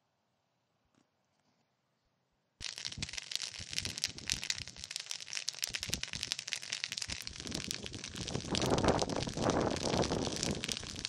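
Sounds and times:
brush fire crackling and popping: 2.6 - 11.0.

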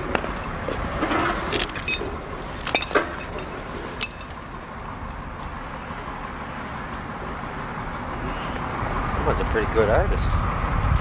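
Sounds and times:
rubble clinking and knocking: 0.1 - 4.5.

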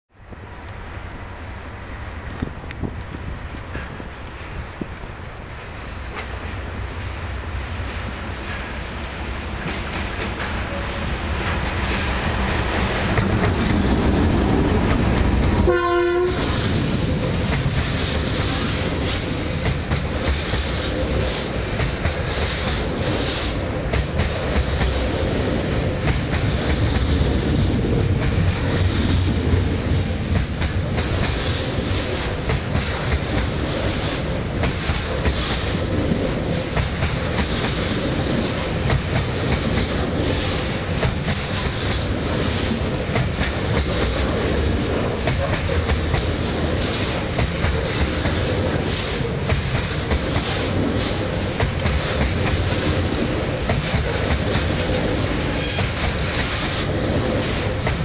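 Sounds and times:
train wheels clacking over rail joints: 9.6 - 58.0
train horn blast: 15.5 - 16.8.

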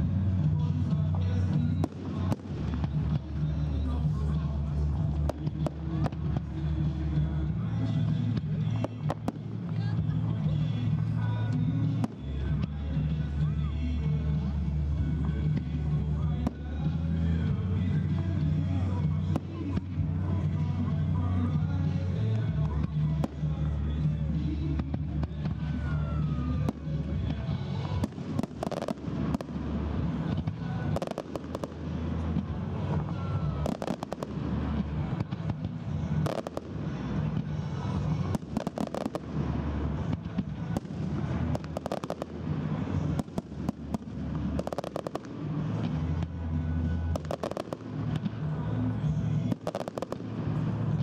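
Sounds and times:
firework bangs and crackles: 0.0 - 51.0
low rumble: 0.0 - 51.0.

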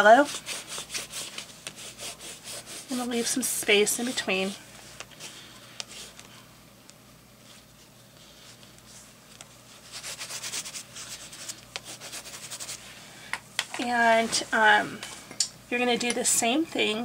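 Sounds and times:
crayon scratching on paper: 0.1 - 4.6, 9.8 - 12.8.

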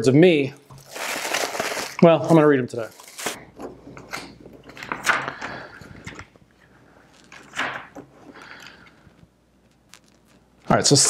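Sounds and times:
paper pages turning: 0.8 - 3.4, 9.7 - 11.0.

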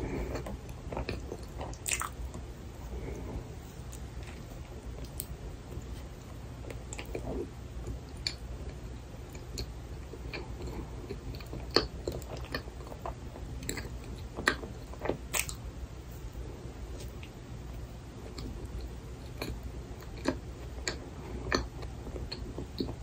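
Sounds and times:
close chewing: 0.0 - 15.6
wet mouth clicks and smacks: 1.0 - 2.2.

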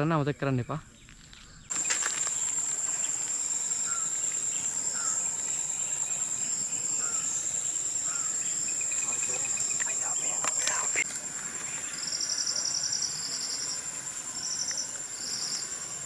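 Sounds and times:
insect drone: 0.1 - 16.0.

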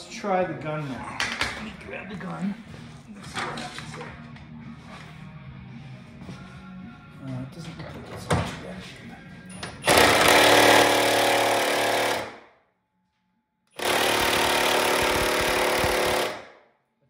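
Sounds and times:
impact wrench hammering: 9.8 - 12.4, 13.8 - 16.5.

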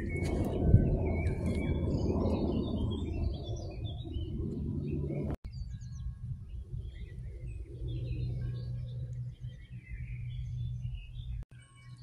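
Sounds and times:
low rumble: 0.0 - 11.4
songbirds chirping: 0.0 - 12.0.

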